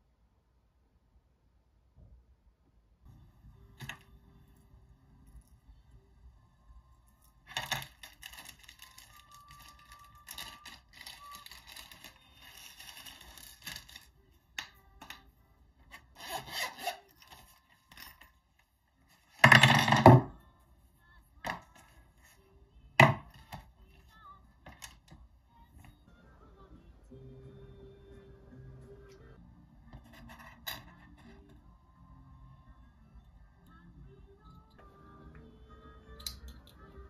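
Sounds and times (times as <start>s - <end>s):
metal keyrings and chains clinking: 7.1s - 14.1s, 16.4s - 20.0s.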